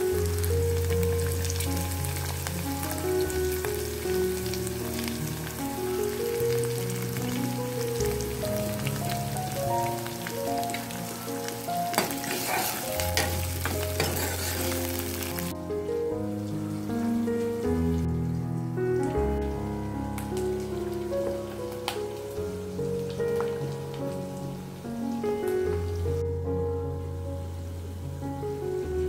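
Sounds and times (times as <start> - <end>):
onions sizzling in hot oil: 0.0 - 15.5, 20.0 - 26.4
sharp crackling: 0.0 - 15.8.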